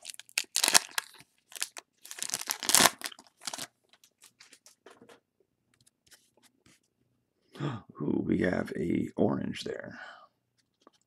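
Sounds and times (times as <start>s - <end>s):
foil wrapper tearing and crinkling: 0.0s - 3.7s.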